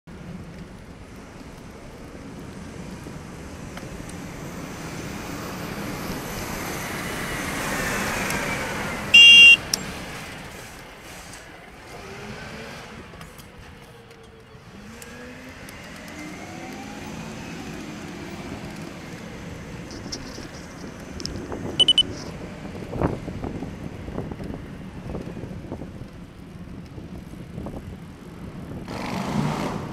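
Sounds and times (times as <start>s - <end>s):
road noise: 0.1s - 29.9s
truck horn blast: 9.2s - 9.7s.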